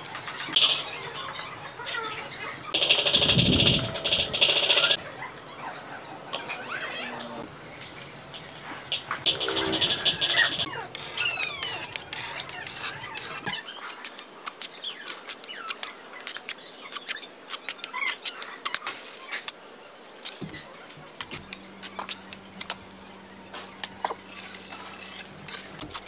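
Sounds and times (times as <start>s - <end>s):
high squeaky chirps: 0.5s - 13.9s
steel trowel scraping cement: 9.2s - 13.6s, 24.3s - 26.0s.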